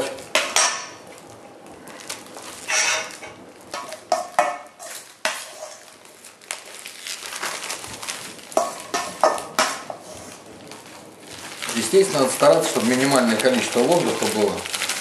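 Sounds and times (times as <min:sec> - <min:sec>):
metal spoon scraping steel bowl: 0:02.7 - 0:03.1, 0:03.8 - 0:05.9.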